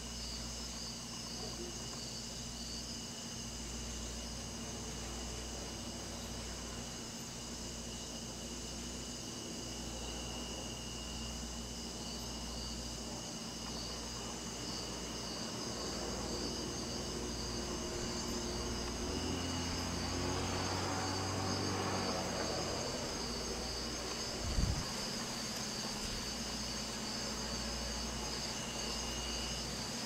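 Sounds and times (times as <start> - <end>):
crickets trilling: 0.0 - 30.0
vehicle engine passing: 16.0 - 24.8.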